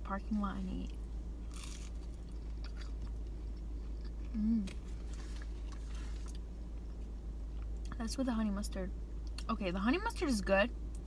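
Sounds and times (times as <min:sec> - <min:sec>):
person biting and chewing: 0:01.5 - 0:06.4
person humming: 0:04.3 - 0:04.8.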